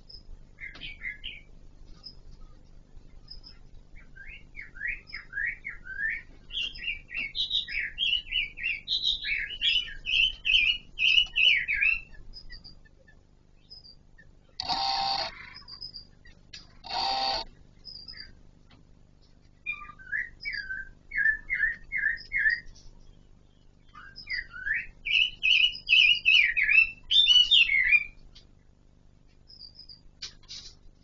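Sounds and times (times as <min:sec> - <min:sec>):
harsh rasping bird bursts: 0:16.8 - 0:17.5.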